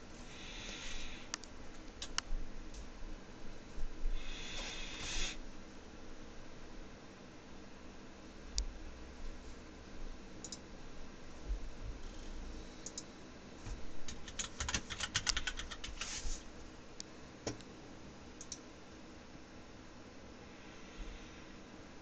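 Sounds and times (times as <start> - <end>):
computer keyboard typing: 14.1 - 16.2.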